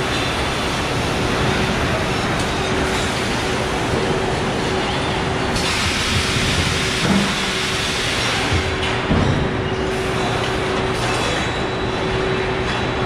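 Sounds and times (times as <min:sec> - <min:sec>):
faint constant hum: 0:00.0 - 0:13.0
machinery running: 0:00.0 - 0:13.0
hiss: 0:05.6 - 0:08.5.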